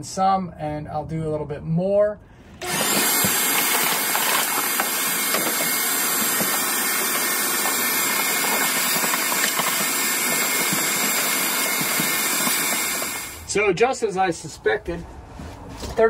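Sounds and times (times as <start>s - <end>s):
vacuum cleaner running: 2.6s - 13.5s.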